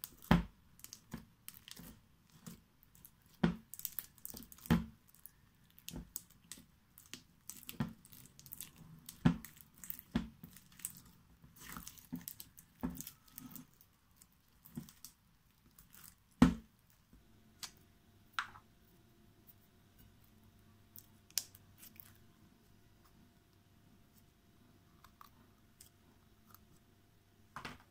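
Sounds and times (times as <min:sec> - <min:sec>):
slime squishing and popping: 0:00.0 - 0:16.7.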